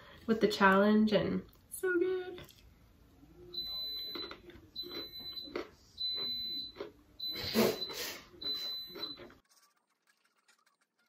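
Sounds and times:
pressure cooker beeping: 3.6s - 9.3s.

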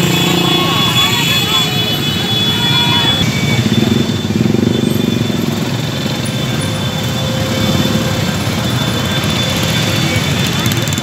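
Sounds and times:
motorcycle passing by: 0.0s - 1.8s
motorcycle engines running: 0.0s - 11.0s.

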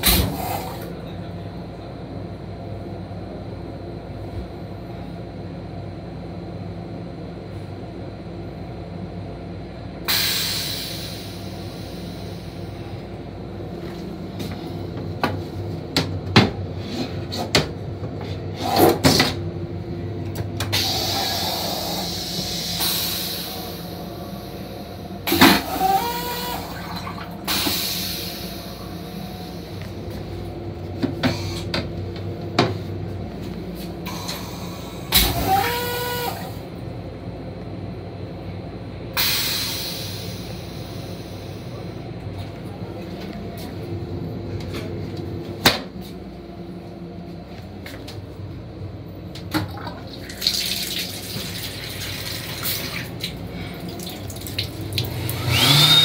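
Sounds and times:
railcar low hum: 0.0s - 55.7s.

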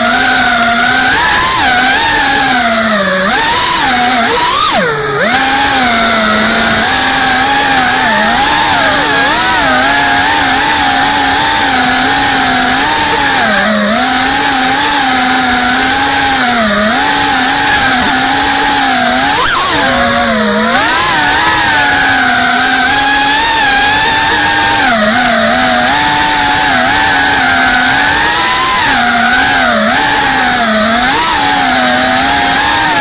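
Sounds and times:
drone motors buzzing: 0.0s - 33.0s.

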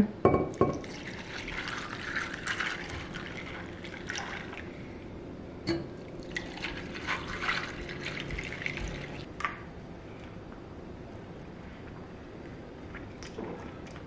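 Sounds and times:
liquid pouring over ice: 0.8s - 4.8s, 6.2s - 9.3s.

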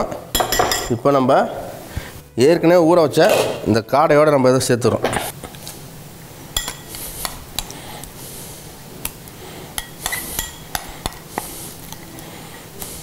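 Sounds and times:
spoon clinking against glass bowl: 0.3s - 1.0s, 6.6s - 6.9s, 9.8s - 10.9s.

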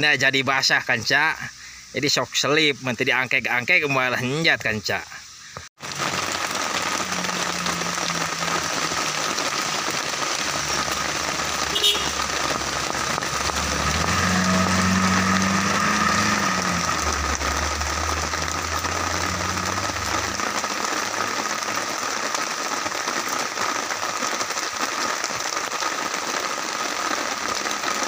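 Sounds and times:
heavy rain on wet road: 5.5s - 28.0s
van engine humming: 10.4s - 21.6s.

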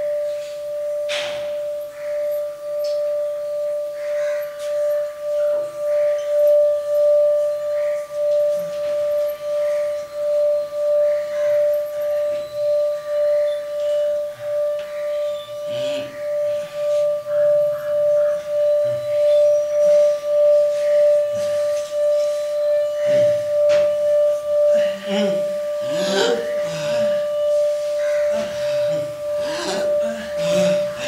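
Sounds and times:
singing bowl ringing: 0.0s - 31.0s
person moaning: 24.8s - 27.3s, 28.3s - 31.0s.

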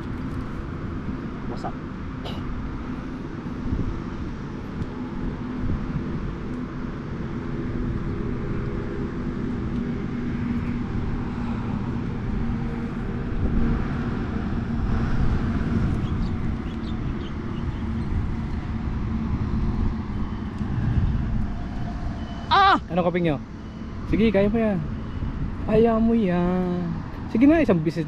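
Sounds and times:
low engine hum: 0.0s - 28.0s
low rumbling noise: 0.0s - 28.0s.

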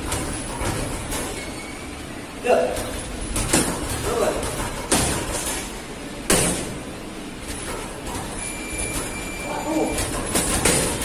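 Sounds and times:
punches hitting focus mitts: 3.4s - 5.4s, 6.3s - 6.8s.

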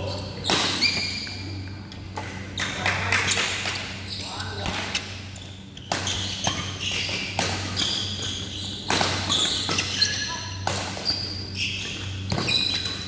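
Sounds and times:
shoes squeaking on court floor: 0.0s - 13.0s
steady low hum: 0.0s - 13.0s
racket striking shuttlecock: 8.8s - 11.0s.

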